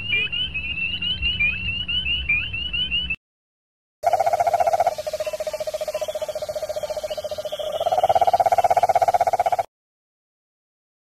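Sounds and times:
frogs peeping in chorus: 4.0s - 9.7s
toad trilling: 4.0s - 9.7s.

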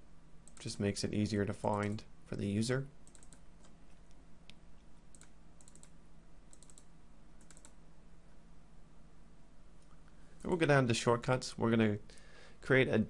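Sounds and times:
steady low hum: 0.0s - 13.0s
computer mouse clicks: 0.4s - 0.7s, 3.0s - 7.8s.

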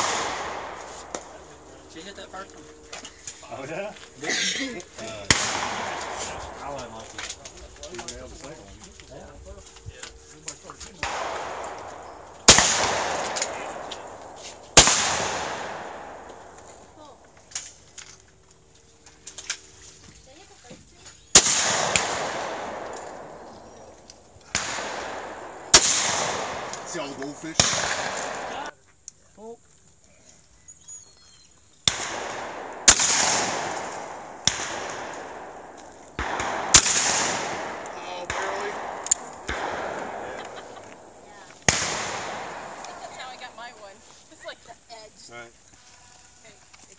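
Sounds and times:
shotgun blasts with echo: 0.0s - 18.2s, 21.3s - 28.7s, 31.8s - 44.5s.

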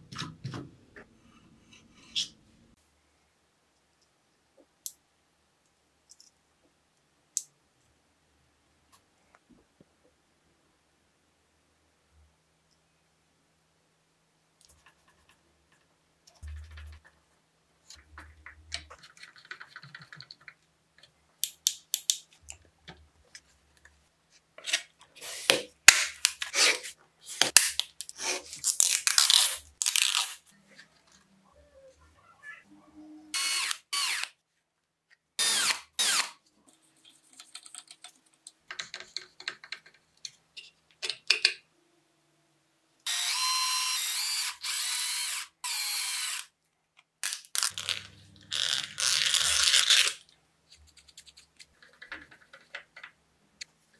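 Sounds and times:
small power tool: 33.4s - 34.3s, 35.4s - 36.3s, 43.0s - 46.5s
clicks and taps of parts: 37.3s - 41.6s.

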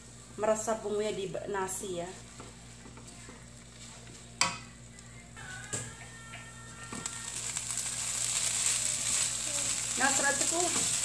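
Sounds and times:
frying sizzle: 6.8s - 11.0s
spatula scraping in a wok: 7.3s - 11.0s.

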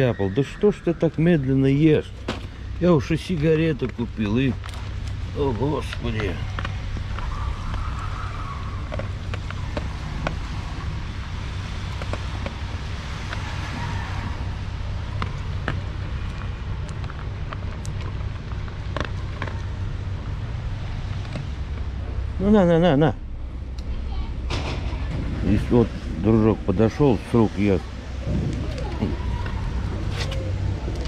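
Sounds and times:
low background rumble: 0.0s - 31.0s
dog crunching dry kibble: 15.0s - 20.4s.

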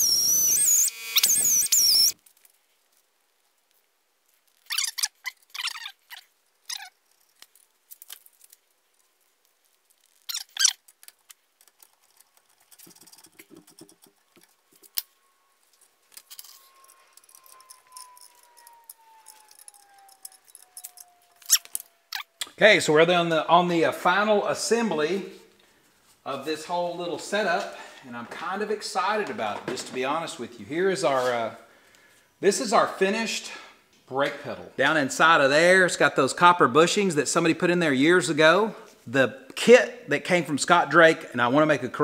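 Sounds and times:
metal parts scraping and clinking: 6.7s - 8.7s, 9.8s - 22.4s
faint falling tone: 14.7s - 23.6s.

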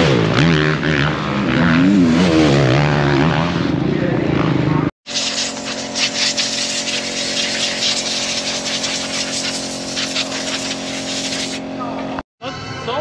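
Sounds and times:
rough hiss: 5.1s - 11.6s
motor running steadily: 5.5s - 12.2s.

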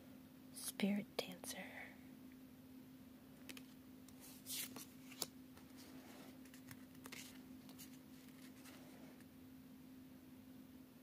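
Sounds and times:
faint steady hum: 0.0s - 11.0s
cards tapping: 3.4s - 3.8s, 6.4s - 8.8s
cards swishing: 3.5s - 9.2s.

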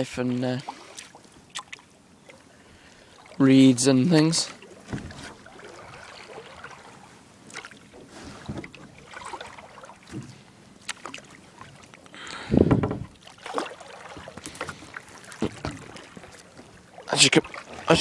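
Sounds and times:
kayak paddle strokes splashing: 0.6s - 18.0s.

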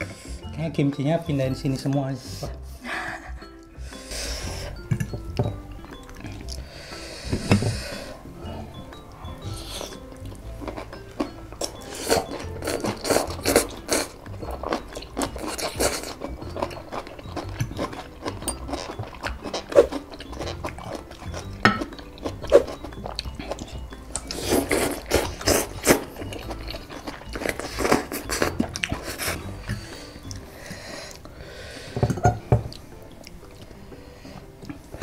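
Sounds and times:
people slurping noodles: 24.2s - 29.9s.

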